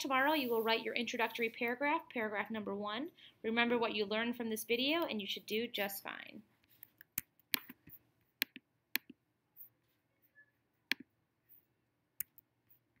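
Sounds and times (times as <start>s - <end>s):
computer mouse clicks: 6.6s - 9.2s.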